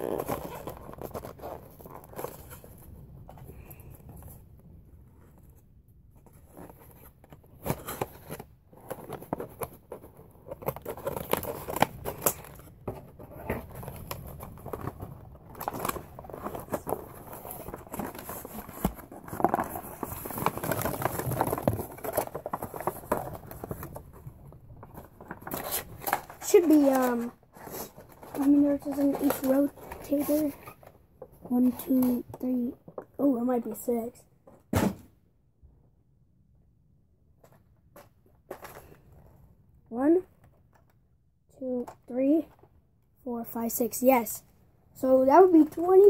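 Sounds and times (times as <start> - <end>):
packaging rustling and crinkling: 0.0 - 3.6, 6.2 - 31.0.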